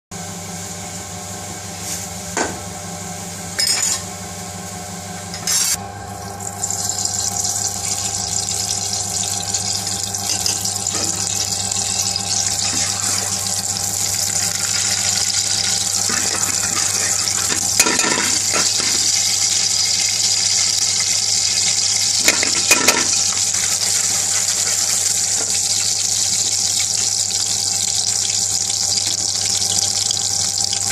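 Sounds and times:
steady hum: 1.4s - 30.8s
oil sizzling in a pan: 6.3s - 30.9s.

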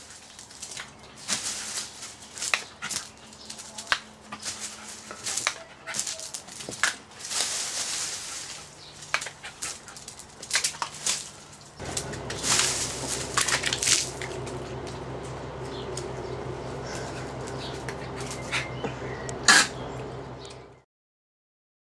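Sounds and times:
low hum: 11.8s - 20.8s.

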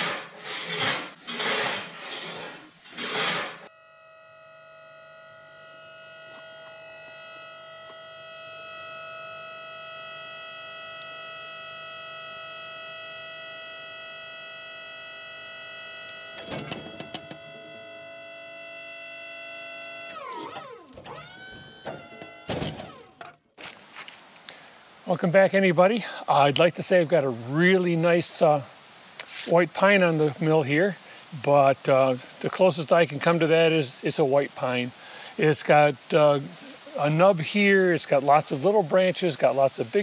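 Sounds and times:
hydraulic log loader whining: 0.0s - 23.8s.

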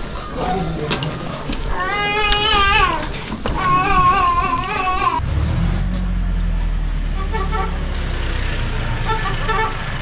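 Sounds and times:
tractor engine rumbling: 0.0s - 10.0s
vehicle horn beeps: 7.1s - 7.9s, 9.0s - 9.8s.

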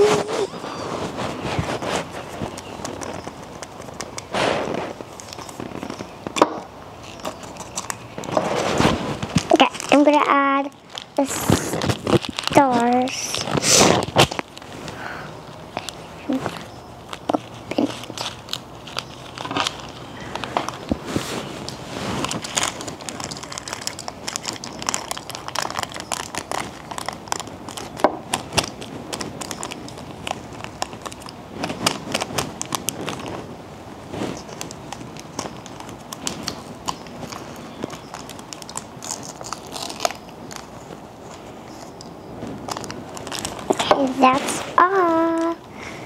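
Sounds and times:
plastic packet crinkling: 0.0s - 45.9s.

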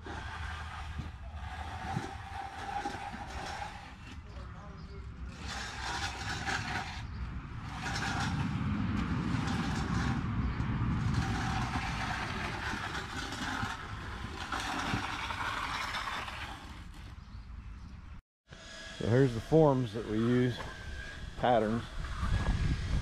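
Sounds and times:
passing road vehicle rumble: 5.1s - 17.3s.

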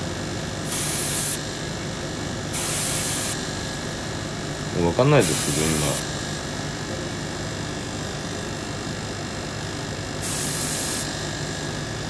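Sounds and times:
steady background hum: 0.0s - 12.0s
airbrush spraying hiss: 0.7s - 1.4s, 2.6s - 3.4s, 5.2s - 6.0s, 10.2s - 11.1s.

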